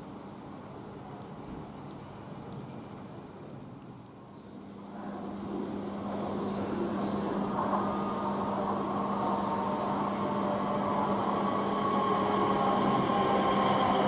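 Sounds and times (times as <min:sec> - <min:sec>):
train hum and whine: 0:04.2 - 0:14.0
wheels on rails: 0:06.0 - 0:14.0.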